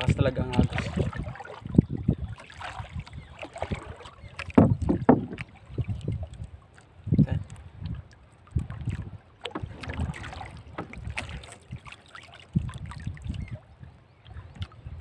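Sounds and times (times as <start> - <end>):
water lapping against boat hull: 0.0 - 15.0
wind buffeting microphone: 0.0 - 15.0
knocks and clicks: 4.4 - 5.5.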